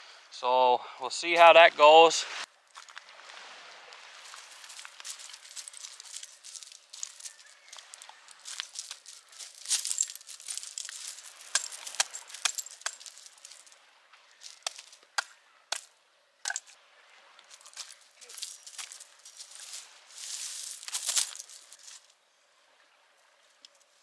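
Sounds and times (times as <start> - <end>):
gear crinkling and rustling: 4.2 - 13.8, 14.4 - 15.9, 17.5 - 22.1.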